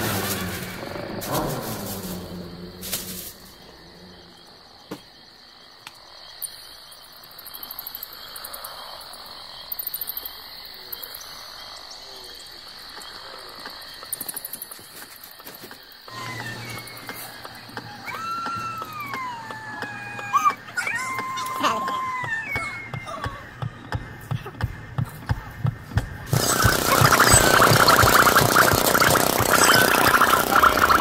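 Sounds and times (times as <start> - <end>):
insect-like trill: 0.0 - 18.6, 26.3 - 31.0
frog croaking: 26.4 - 31.0.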